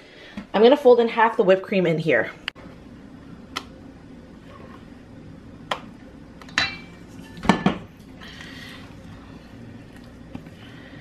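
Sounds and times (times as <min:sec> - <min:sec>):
metal bowls clanking: 0:06.5 - 0:07.9.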